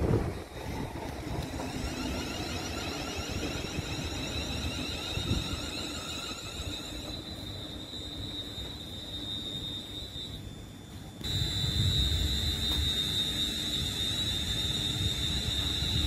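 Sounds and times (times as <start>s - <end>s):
wheels rumbling on rails: 0.0s - 10.1s
electric train inverters whining: 0.0s - 16.0s
steady high whistle: 0.6s - 16.0s.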